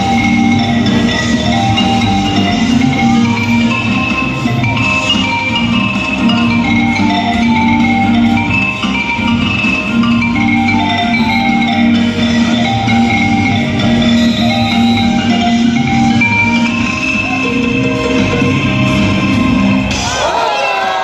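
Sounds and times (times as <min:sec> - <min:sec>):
repeating low bass line: 0:00.0 - 0:19.9
mallet percussion melody: 0:00.0 - 0:21.0.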